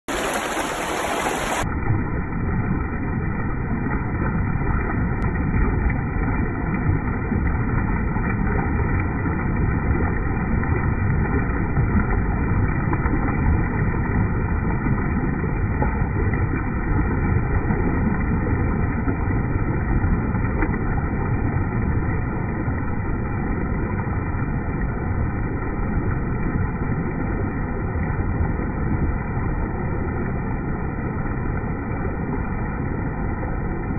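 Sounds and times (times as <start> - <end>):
floodwater rushing: 0.0 - 33.9.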